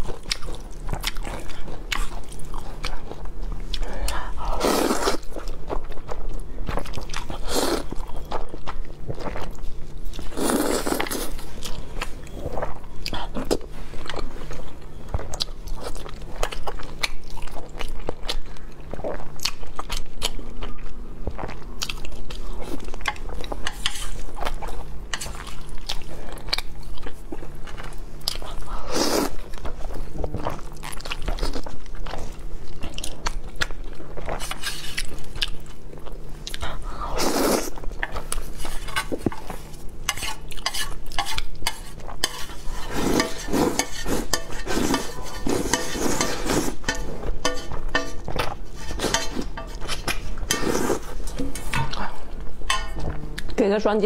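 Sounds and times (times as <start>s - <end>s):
slurping noodles: 4.4s - 5.3s, 10.3s - 11.4s, 37.1s - 37.8s, 42.4s - 46.8s.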